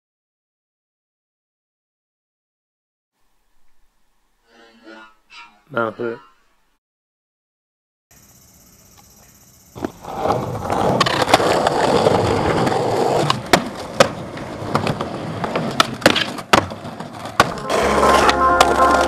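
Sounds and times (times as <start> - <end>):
skateboard rolling on concrete: 9.0 - 19.0.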